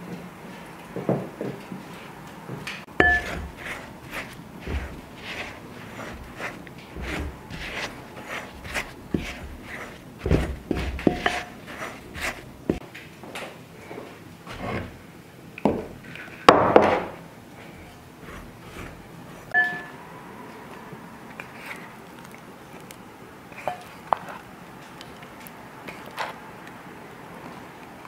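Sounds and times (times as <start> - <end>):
wooden spoon scraping bowl: 2.9 - 12.8, 14.4 - 15.0, 17.6 - 19.9, 21.4 - 21.9, 22.7 - 24.5, 25.8 - 26.4.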